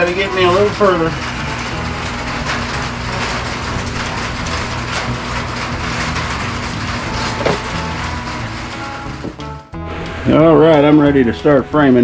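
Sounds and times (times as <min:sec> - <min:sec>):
reciprocating saw cutting wood: 0:07.0 - 0:08.0.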